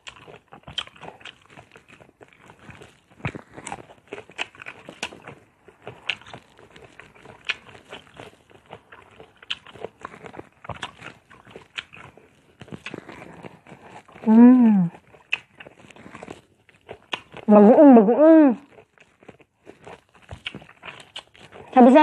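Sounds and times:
person biting and chewing: 0:00.0 - 0:17.5, 0:18.6 - 0:22.0.

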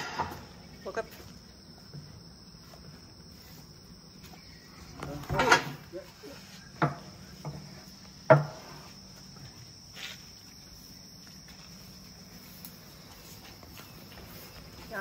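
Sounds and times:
crickets chirring: 0:00.0 - 0:15.0
knocks on metal gate: 0:08.3 - 0:08.6.

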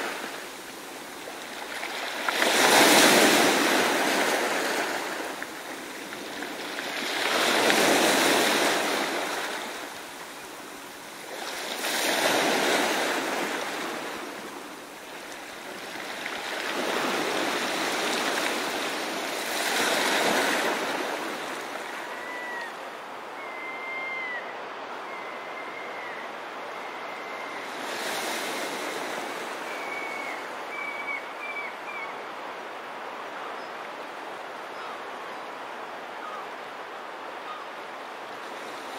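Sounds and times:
ocean surf breaking: 0:00.0 - 0:23.2
faint high bird calls: 0:21.7 - 0:27.8, 0:29.6 - 0:32.2, 0:36.2 - 0:36.5.

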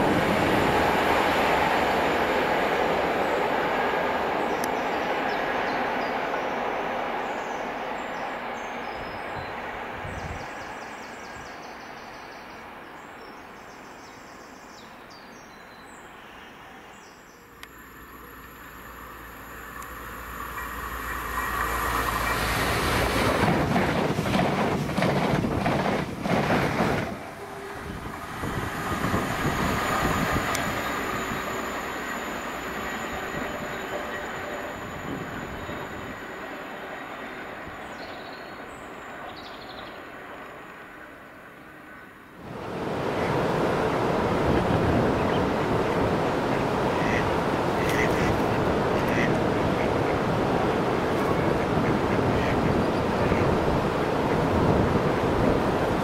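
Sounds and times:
steam train passing: 0:00.0 - 0:12.0, 0:16.0 - 0:56.0.

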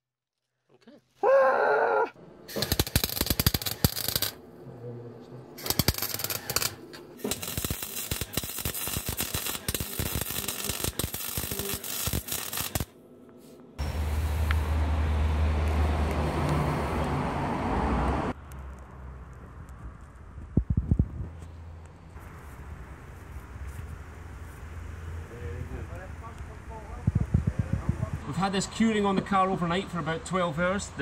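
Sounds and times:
welding arc crackling: 0:02.5 - 0:04.4, 0:05.6 - 0:13.0
steady low rumble: 0:18.4 - 0:28.3.

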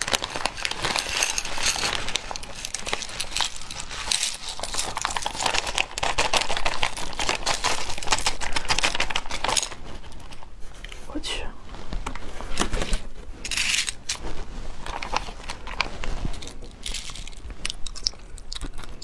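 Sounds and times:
snail shells clattering: 0:00.0 - 0:10.4, 0:14.9 - 0:19.0
plastic bag crinkling: 0:00.0 - 0:10.5, 0:12.0 - 0:19.0.

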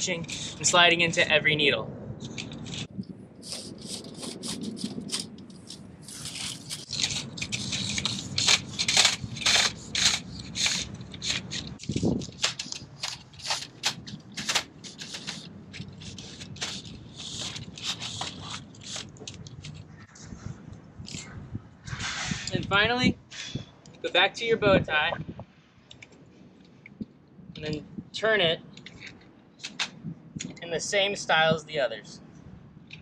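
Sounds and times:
slats scraping through fence wire: 0:03.4 - 0:19.8.

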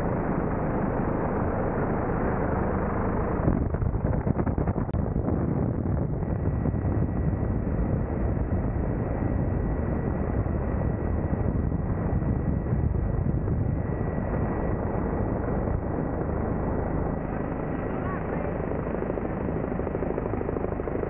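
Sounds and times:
helicopter rotor and engine noise: 0:00.0 - 0:21.0
wind buffeting on microphone: 0:02.4 - 0:21.0.

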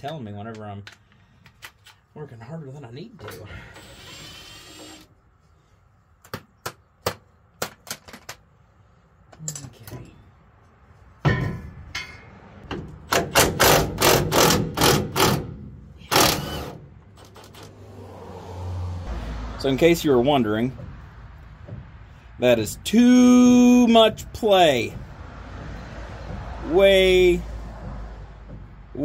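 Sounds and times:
impact wrench hammering: 0:11.2 - 0:16.8, 0:24.0 - 0:29.0
metal tools clinking: 0:11.3 - 0:12.3.

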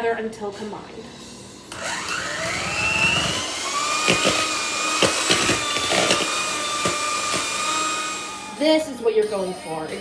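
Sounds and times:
electric hand mixer whining: 0:01.7 - 0:09.4.

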